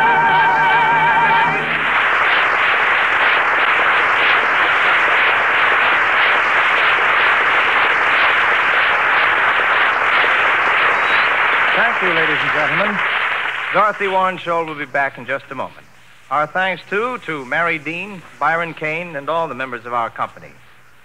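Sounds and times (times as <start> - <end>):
song ending: 0.0 - 2.8
audience applauding: 0.3 - 14.9.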